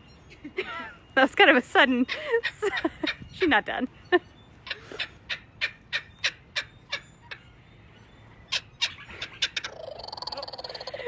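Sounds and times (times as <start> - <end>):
kookaburra calling: 4.5 - 11.0.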